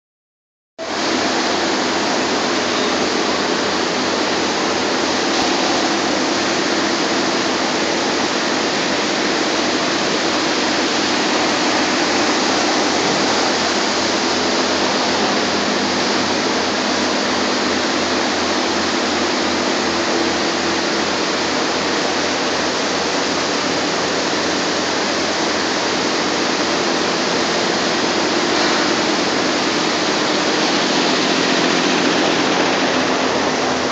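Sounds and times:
loud rushing noise: 0:00.9 - 0:22.8, 0:23.6 - 0:33.9.

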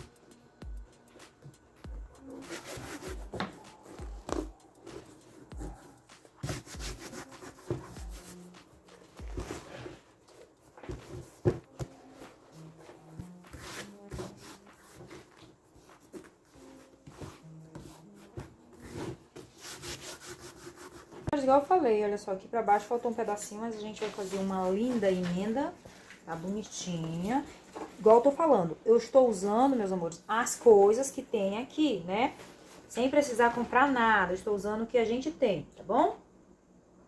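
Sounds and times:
fabric rubbing and rustling: 0:02.2 - 0:21.4, 0:23.2 - 0:28.3.

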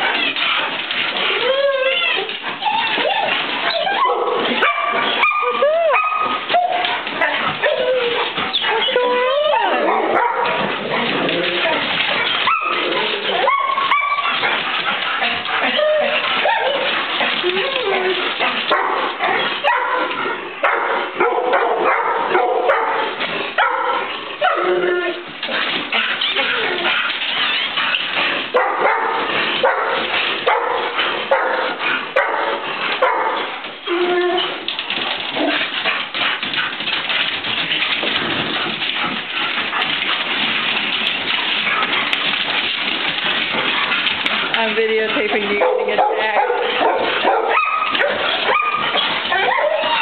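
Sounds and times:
dogs yelping and barking: 0:00.0 - 0:50.0
fur and bodies rustling: 0:41.6 - 0:50.0.

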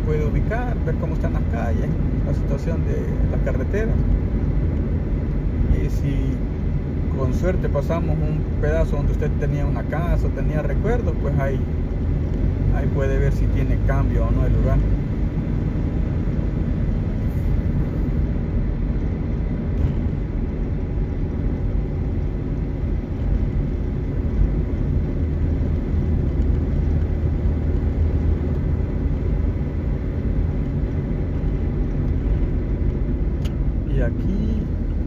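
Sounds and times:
car road and engine rumble: 0:00.0 - 0:35.0.

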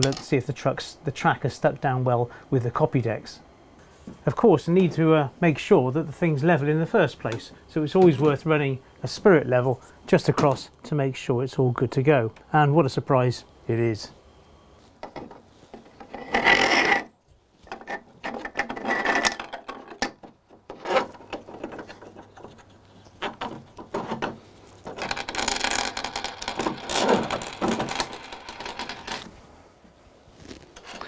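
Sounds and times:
nuts and washers clinking: 0:24.8 - 0:29.3.

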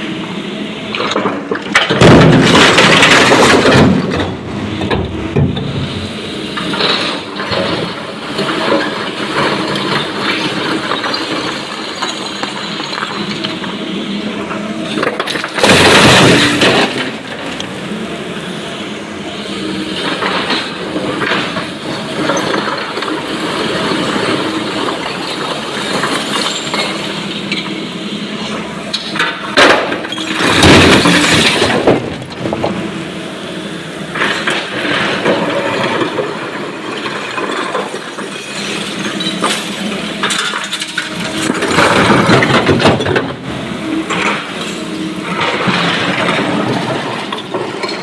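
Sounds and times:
excavator diesel engine running: 0:00.0 - 0:48.0
broken stone crashing into truck: 0:01.7 - 0:05.9, 0:15.0 - 0:17.3, 0:29.6 - 0:32.8, 0:41.4 - 0:43.4
rock rattling and scraping: 0:30.1 - 0:32.8.

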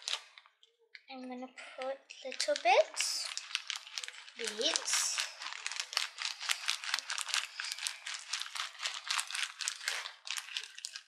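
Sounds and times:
beads rattling: 0:02.3 - 0:11.0.

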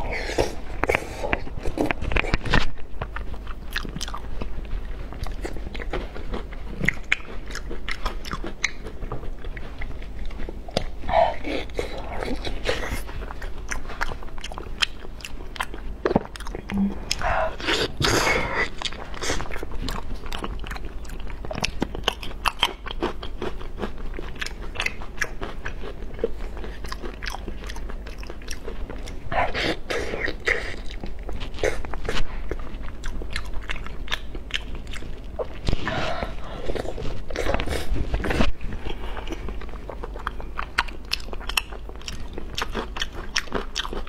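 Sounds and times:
wet chewing sounds: 0:00.0 - 0:44.0.

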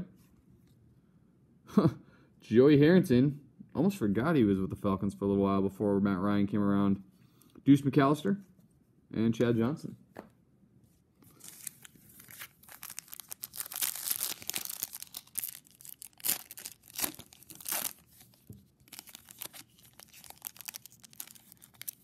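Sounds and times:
foil wrapper tearing and crinkling: 0:11.3 - 0:22.0.

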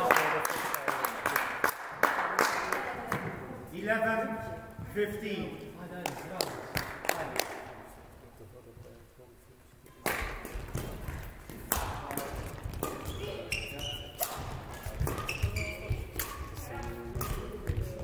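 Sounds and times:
racket hitting shuttlecock: 0:10.0 - 0:18.0
sports shoes squeaking on court: 0:12.6 - 0:16.6.

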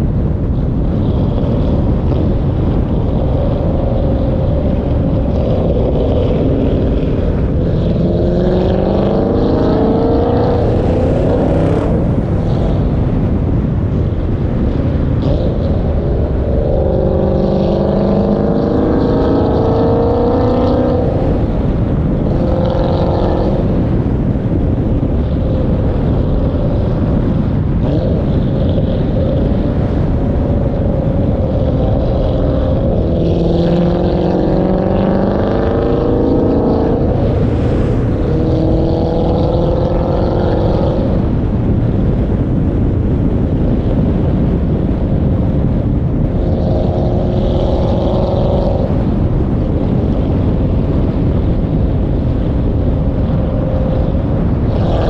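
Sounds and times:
car exhaust accelerating: 0:00.0 - 0:55.0
wind rush on microphone: 0:00.0 - 0:55.0.

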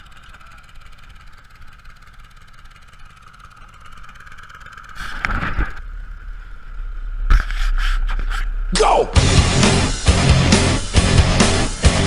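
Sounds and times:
small tractor engine idling: 0:00.0 - 0:05.3.

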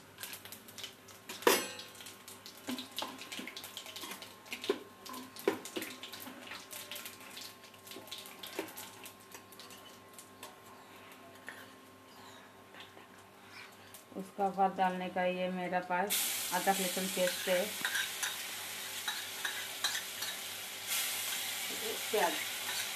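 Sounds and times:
spices sizzling in oil: 0:00.0 - 0:10.7, 0:16.1 - 0:22.9
spatula scraping a pan: 0:17.2 - 0:18.4.

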